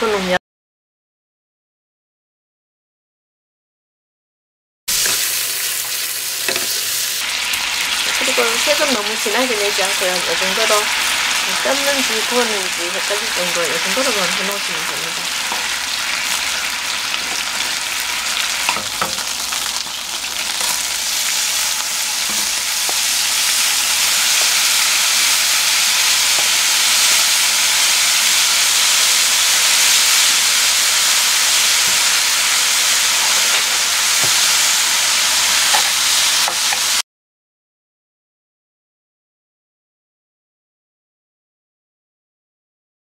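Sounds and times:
meat sizzling in oil: 0:04.9 - 0:37.0.

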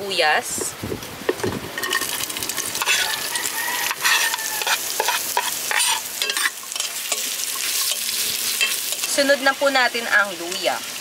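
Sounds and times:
onions sizzling in hot oil: 0:00.0 - 0:11.0
spoon scraping a metal pot: 0:01.3 - 0:09.1.

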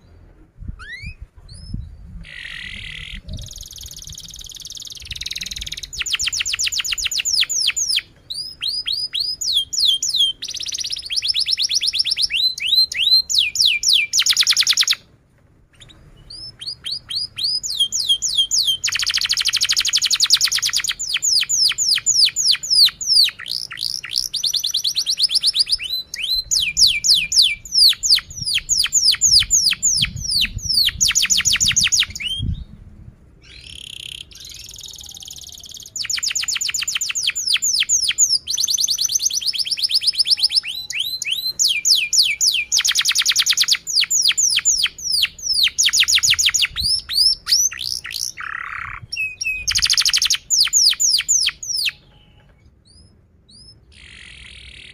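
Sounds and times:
canary singing trills: 0:00.8 - 0:15.1, 0:15.7 - 0:32.7, 0:33.4 - 0:54.9.

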